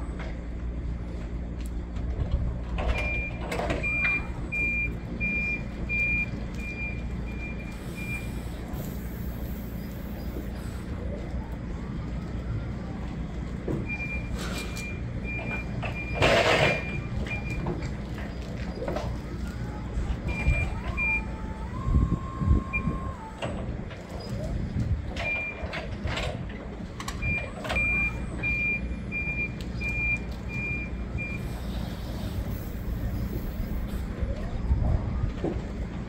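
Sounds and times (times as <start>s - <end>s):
forklift engine running: 0.0s - 36.0s
reversing alarm beeping: 2.9s - 8.5s, 13.8s - 18.0s, 20.2s - 23.2s, 25.2s - 25.8s, 27.2s - 31.8s.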